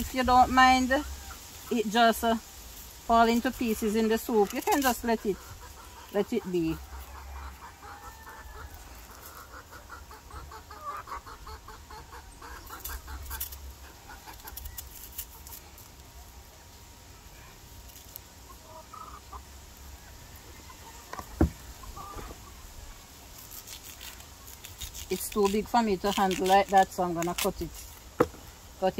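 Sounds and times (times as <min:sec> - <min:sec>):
chickens clucking: 0:03.2 - 0:15.6, 0:18.3 - 0:23.0.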